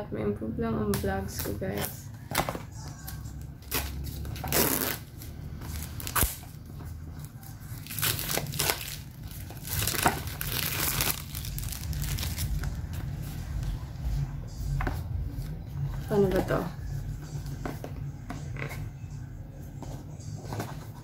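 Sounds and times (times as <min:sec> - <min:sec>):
plastic wrap crinkling: 0:03.6 - 0:13.0.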